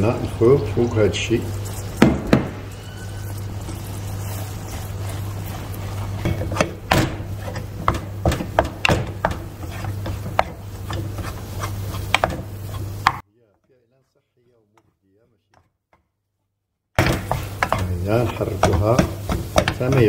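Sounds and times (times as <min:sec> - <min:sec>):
wooden spoon stirring in pan: 0:00.0 - 0:13.2, 0:14.6 - 0:16.1, 0:17.0 - 0:20.0
spoon knocking against pan: 0:17.0 - 0:20.0.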